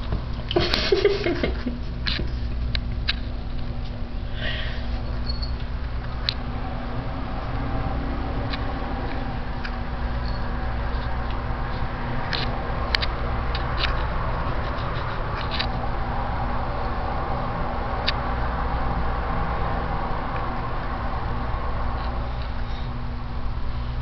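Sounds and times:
low hum: 0:00.0 - 0:24.0
cat claws scratching and clicking: 0:00.4 - 0:03.9, 0:08.5 - 0:15.8.

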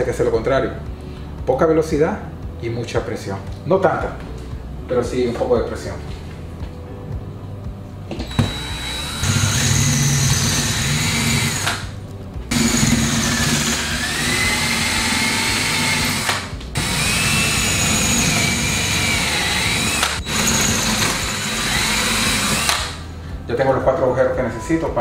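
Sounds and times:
drill grinding into stone tile: 0:08.2 - 0:11.9, 0:12.5 - 0:23.0.

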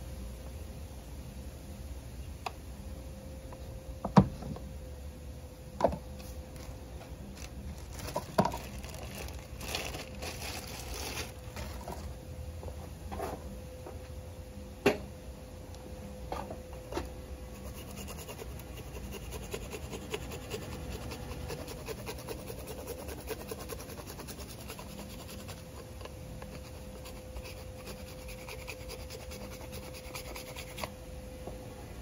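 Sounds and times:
cheese scraping on grater: 0:17.6 - 0:25.7.

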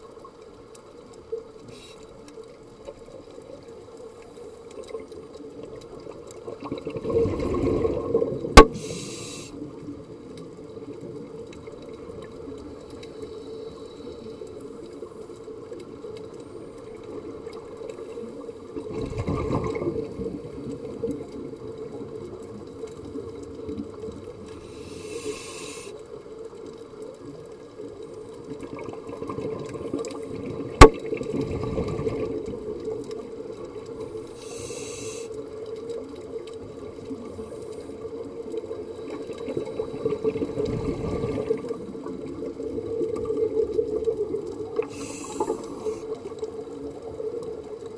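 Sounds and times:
regulator inhalation hiss: 0:01.7 - 0:02.1, 0:08.6 - 0:09.6, 0:24.6 - 0:26.0, 0:34.3 - 0:35.4, 0:44.8 - 0:46.2
bubbling underwater exhalations: 0:06.6 - 0:09.0.

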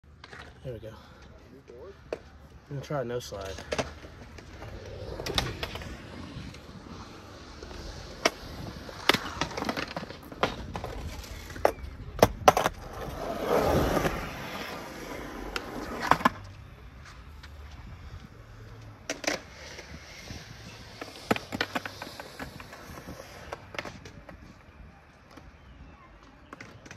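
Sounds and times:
skateboard wheels rolling: 0:00.1 - 0:26.9
skateboard clacking on concrete: 0:02.0 - 0:06.6, 0:07.4 - 0:14.1, 0:18.8 - 0:26.9.

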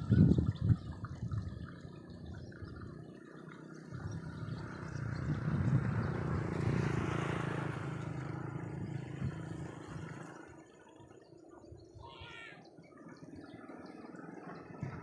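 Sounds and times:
vehicle engine passing by: 0:01.4 - 0:11.3.

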